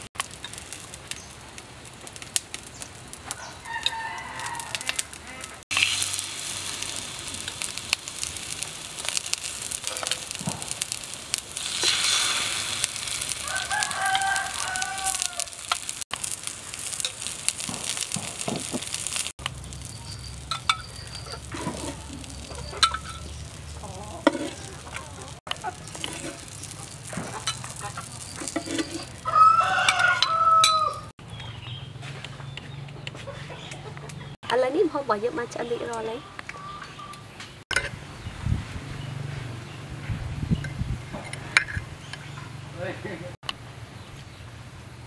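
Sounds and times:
food sizzling in oil: 0:00.0 - 0:31.1
rooster crowing: 0:03.3 - 0:05.6, 0:13.4 - 0:15.7, 0:28.9 - 0:31.1.

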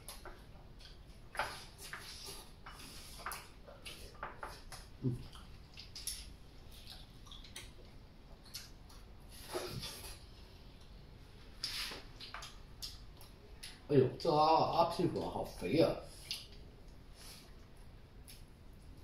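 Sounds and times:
chewing: 0:00.0 - 0:11.0, 0:11.6 - 0:13.9.

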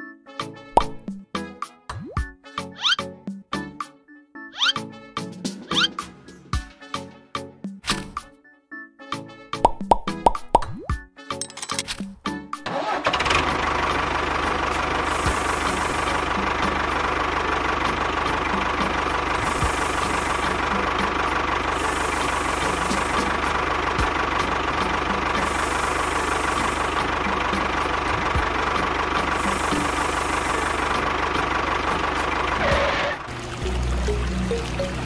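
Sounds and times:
small motor running: 0:14.9 - 0:16.5, 0:19.2 - 0:23.7, 0:25.2 - 0:27.1, 0:29.2 - 0:34.5.

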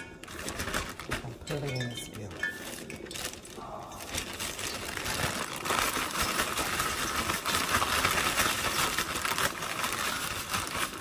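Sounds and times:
plastic bag crinkling: 0:00.0 - 0:11.0
fish shaken in flour in bag: 0:04.0 - 0:11.0.

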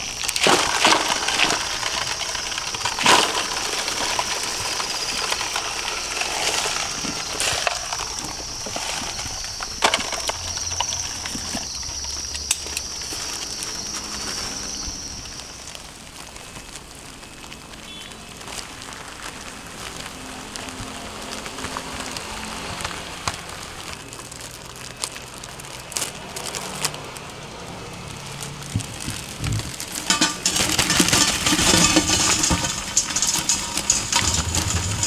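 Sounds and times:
crickets singing: 0:00.0 - 0:18.2
plastic bag crinkling: 0:00.0 - 0:35.0.

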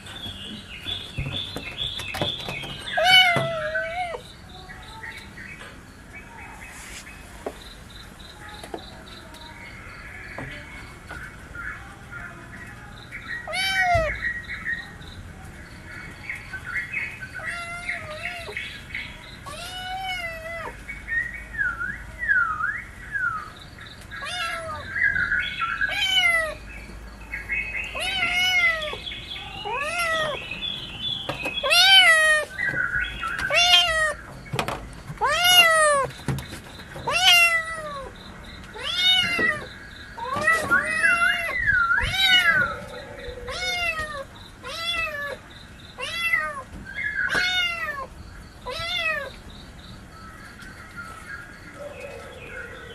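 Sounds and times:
faint bird chirping: 0:00.0 - 0:52.9
kittens meowing: 0:02.9 - 0:04.2, 0:13.4 - 0:14.2, 0:17.4 - 0:18.6, 0:19.4 - 0:20.8, 0:24.2 - 0:24.9, 0:25.8 - 0:26.6, 0:27.9 - 0:30.4, 0:31.6 - 0:32.6, 0:33.4 - 0:34.2, 0:35.2 - 0:36.1, 0:37.0 - 0:45.4, 0:46.0 - 0:46.7, 0:47.3 - 0:49.4.

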